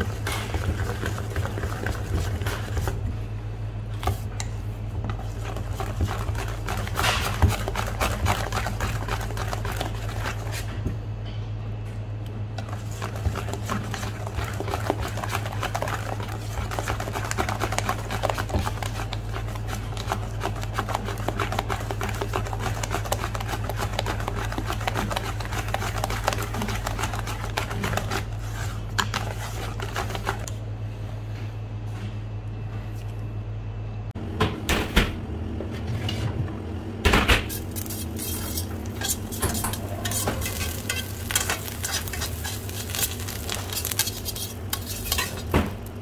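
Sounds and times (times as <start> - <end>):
wire whisk beating batter: 0.0 - 3.1, 4.0 - 10.8, 12.6 - 30.5, 37.5 - 45.6
steady low hum: 0.0 - 46.0.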